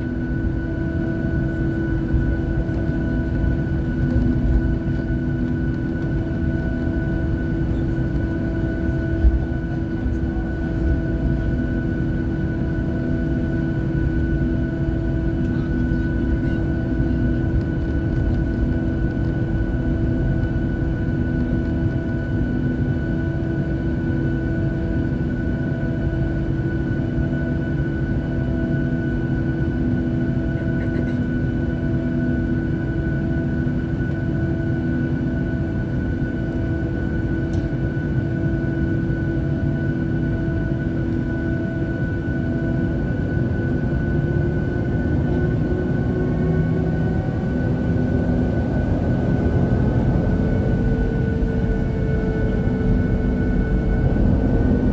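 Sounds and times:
jet engines humming: 0.0 - 54.9.

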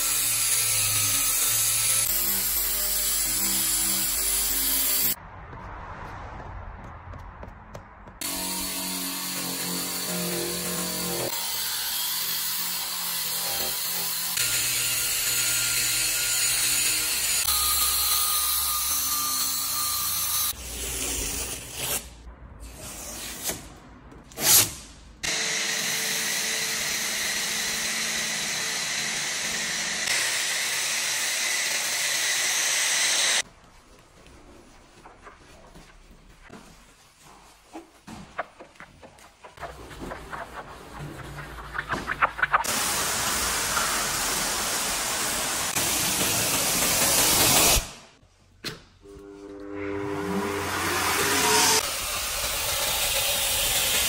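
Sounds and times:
drill brush whirring: 25.2 - 33.4
wash mitt rubbing wet paint: 33.6 - 42.6.

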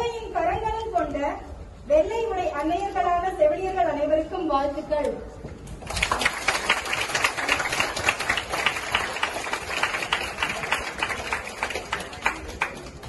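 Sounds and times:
crowd applauding: 5.8 - 13.0.

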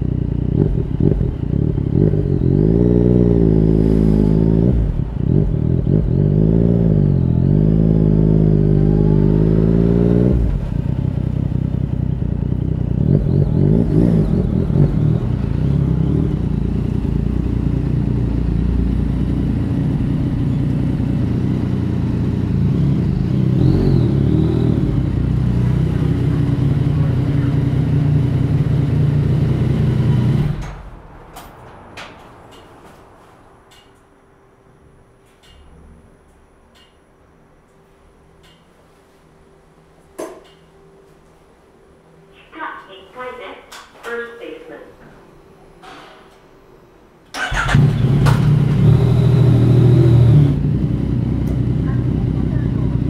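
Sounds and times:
motorcycle engine revving: 0.0 - 31.0, 47.4 - 53.0.

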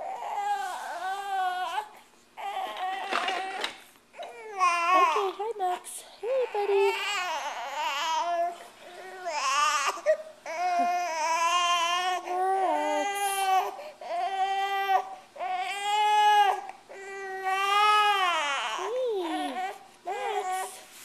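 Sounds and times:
baby crying: 0.0 - 5.4, 6.2 - 20.8.

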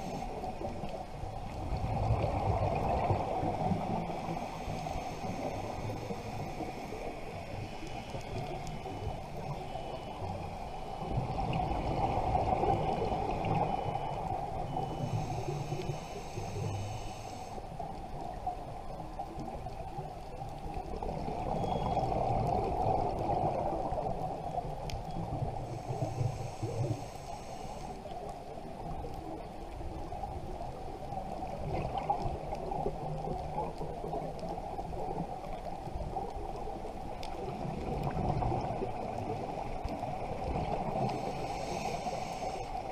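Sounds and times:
regulator hiss: 4.0 - 11.0, 12.7 - 17.8, 25.6 - 28.2, 40.8 - 42.9.

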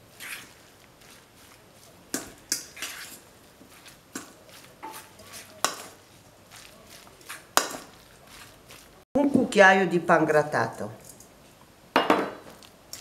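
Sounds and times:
fork scraping metal bowl: 0.1 - 8.8.

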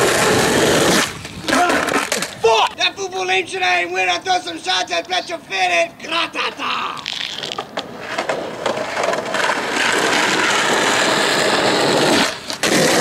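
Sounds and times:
skateboard wheels rolling on asphalt: 0.0 - 2.5, 7.0 - 13.0.

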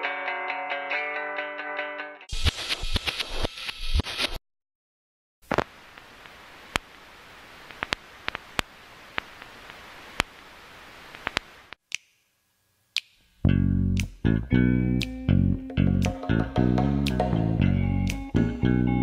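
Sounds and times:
loud crackling static: 2.3 - 4.4, 5.4 - 11.8
soft hiss with clicks and pops: 5.4 - 13.4.

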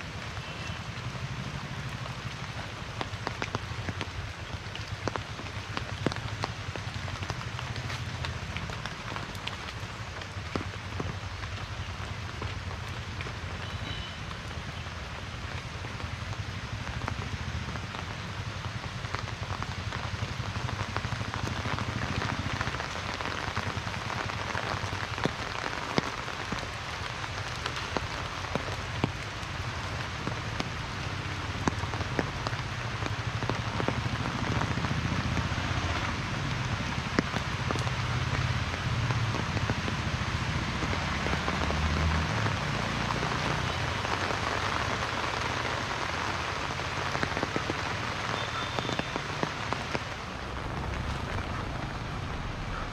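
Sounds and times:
heavy rain falling: 0.0 - 52.9
low rumble: 50.3 - 52.9.

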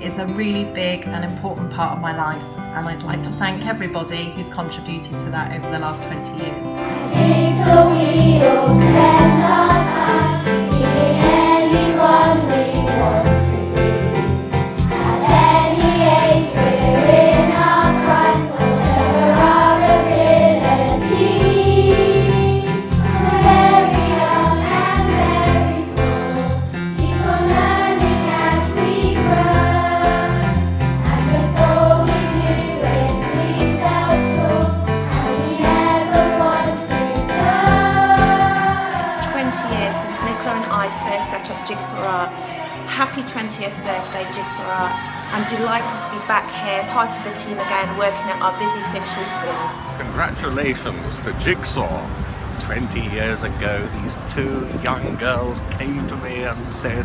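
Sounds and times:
children's choir singing: 6.8 - 50.1
backing track with steady beat: 7.2 - 40.1.

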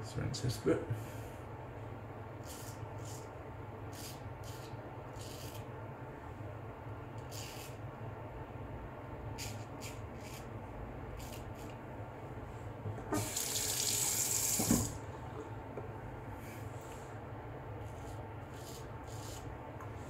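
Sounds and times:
tap running into sink: 13.1 - 15.0.

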